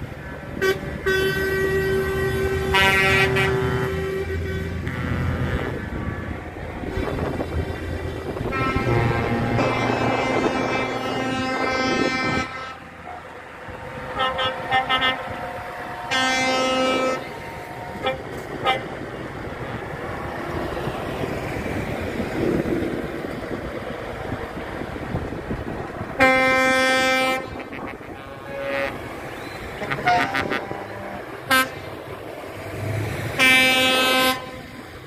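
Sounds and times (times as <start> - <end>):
heavy trucks passing: 0.0 - 35.0
truck air horn blasts: 0.6 - 6.3, 8.4 - 13.2, 14.1 - 15.4, 16.0 - 19.0, 26.2 - 32.0, 33.4 - 34.8.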